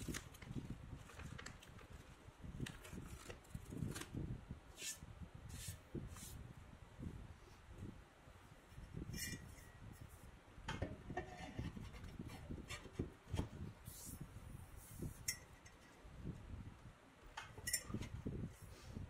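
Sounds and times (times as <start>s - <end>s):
metal clinks and knocks: 17.6s - 18.1s.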